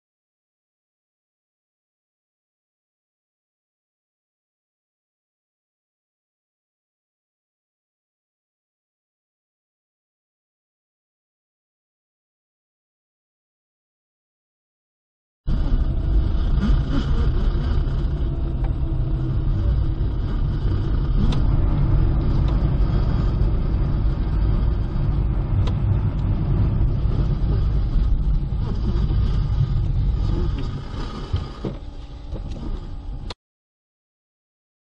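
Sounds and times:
car engine and tyre rumble: 15.5 - 33.4.

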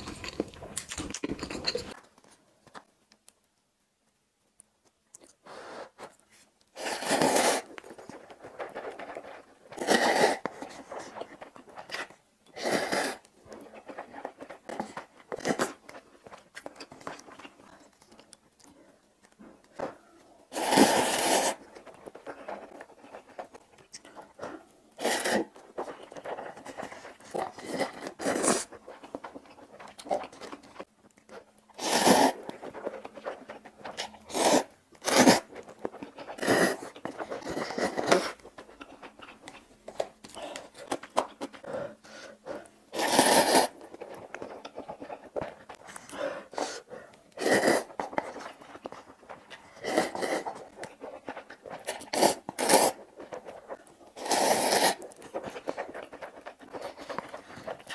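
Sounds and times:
wet chewing: 0.0 - 2.0, 7.6 - 57.9
noodle slurping: 12.5 - 16.0, 20.5 - 30.9, 31.7 - 39.6, 40.3 - 57.9.

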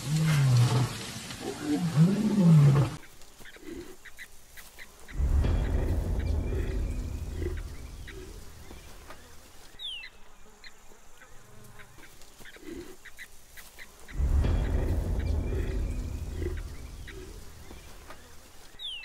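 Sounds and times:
wild birds calling: 0.0 - 19.0
loud deep rumble: 5.1 - 9.2, 14.1 - 18.4.

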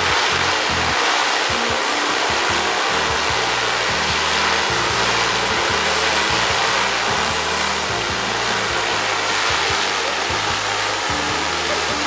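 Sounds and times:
background music: 0.0 - 12.0
drone propellers whirring: 0.0 - 12.0.

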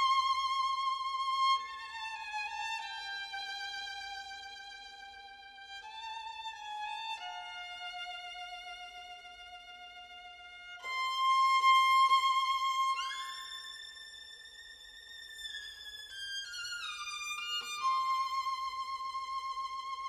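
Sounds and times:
violin playing held notes: 0.0 - 4.6.

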